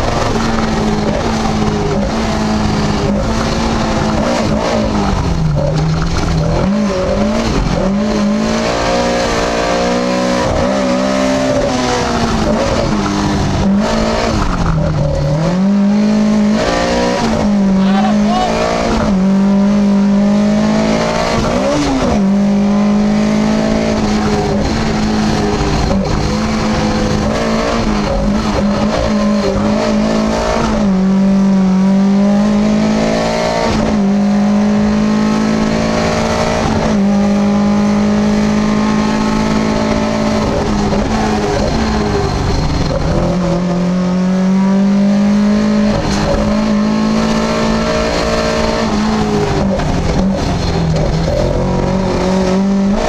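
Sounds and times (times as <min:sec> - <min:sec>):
rally car engine revving: 0:00.0 - 0:53.0.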